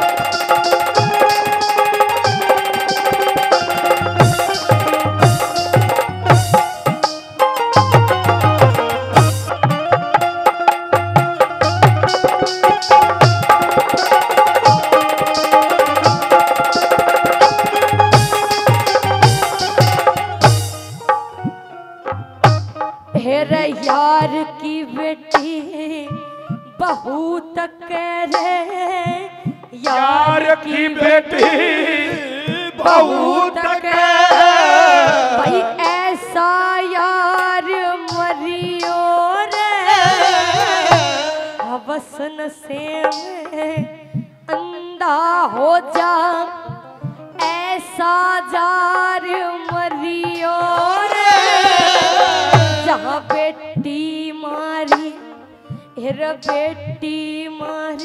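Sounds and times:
woman singing into a microphone: 0:23.1 - 0:58.0
hand drum strokes: 0:38.1 - 0:42.0, 0:49.7 - 0:54.0
steady held note: 0:51.1 - 0:53.4.

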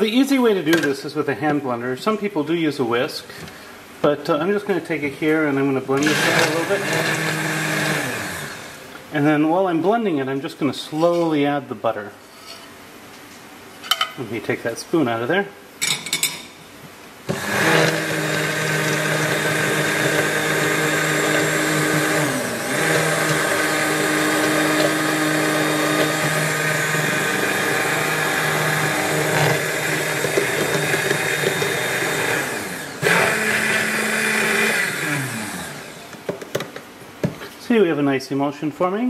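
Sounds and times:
hand blender motor whine: 0:06.0 - 0:08.8, 0:17.3 - 0:36.2.

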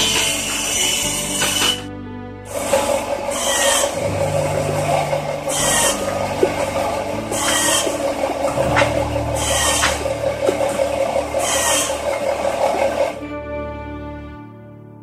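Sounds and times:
sustained musical chord: 0:00.0 - 0:15.0
steady machine hum: 0:02.5 - 0:13.2
rasping wood strokes: 0:03.3 - 0:04.0, 0:07.3 - 0:08.0, 0:11.4 - 0:12.0.

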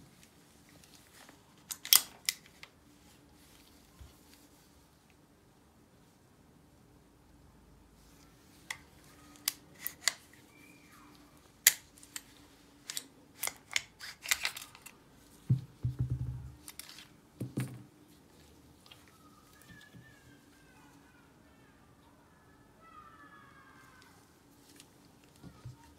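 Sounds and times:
pistol parts clicking: 0:01.7 - 0:02.6, 0:09.4 - 0:10.2, 0:11.6 - 0:15.0.

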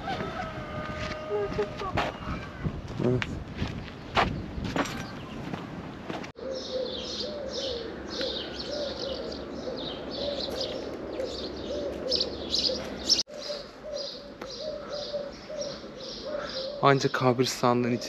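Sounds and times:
low repeated bird call: 0:06.4 - 0:18.0.

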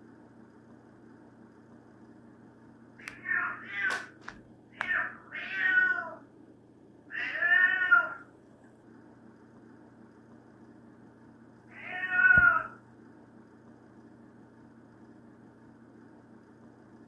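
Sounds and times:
cat meowing: 0:03.0 - 0:04.1, 0:04.8 - 0:06.2, 0:07.1 - 0:08.3, 0:11.7 - 0:12.8.

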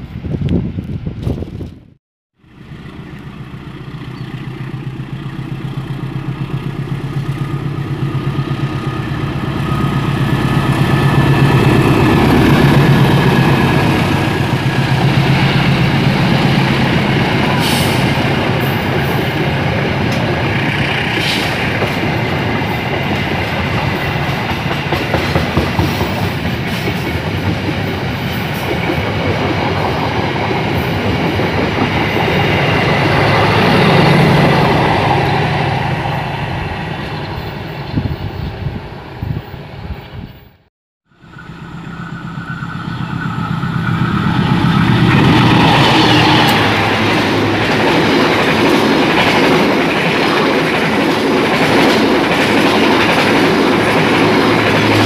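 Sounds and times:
locomotive engine hum: 0:02.4 - 0:25.0, 0:41.1 - 0:50.1
train wheel rumble: 0:02.5 - 0:40.5, 0:41.2 - 0:55.0.

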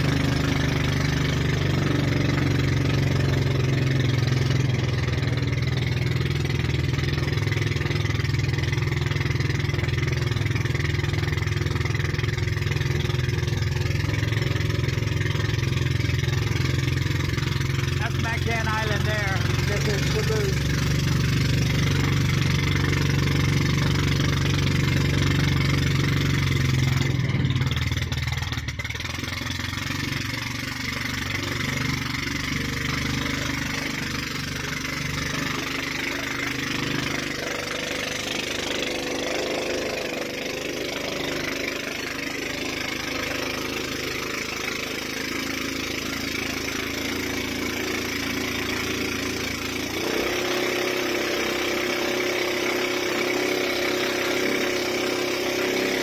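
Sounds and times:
boat engine running: 0:00.0 - 0:56.0.

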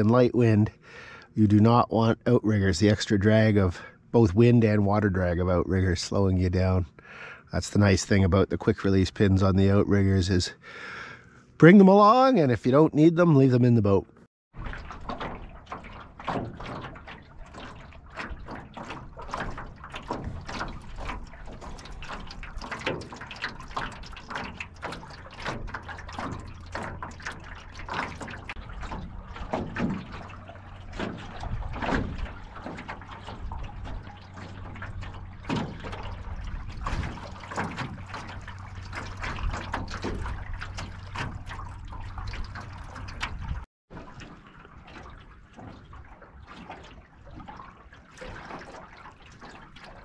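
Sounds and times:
water splashing against metal hull: 0:00.0 - 0:50.0.

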